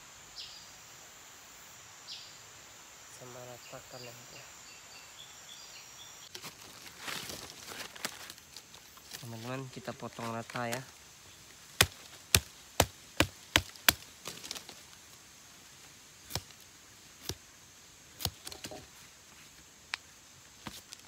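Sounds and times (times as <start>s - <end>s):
machete chopping plant stems: 11.7s - 14.7s, 16.2s - 16.6s, 17.2s - 17.4s, 18.2s - 18.8s.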